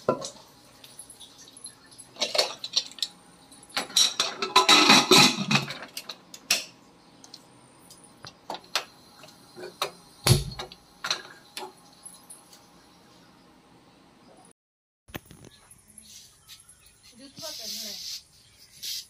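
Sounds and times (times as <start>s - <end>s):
pressure cooker thud on grate: 10.2s - 10.7s.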